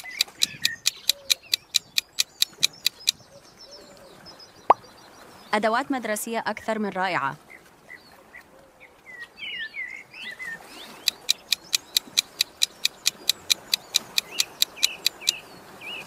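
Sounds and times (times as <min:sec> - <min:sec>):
rapid timer ticking: 0:00.0 - 0:03.2, 0:11.0 - 0:15.4
bird chirping: 0:00.0 - 0:03.9, 0:10.8 - 0:16.0.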